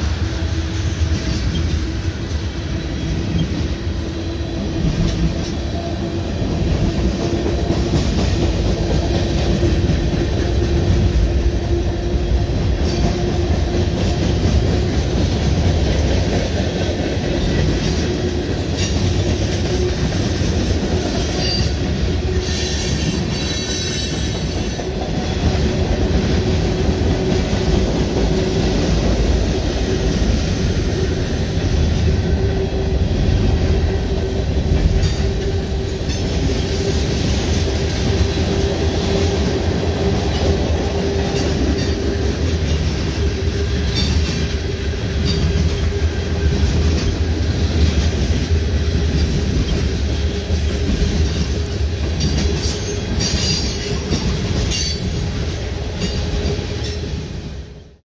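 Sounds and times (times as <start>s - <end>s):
train wheels rumbling on rail: 0.0s - 58.0s.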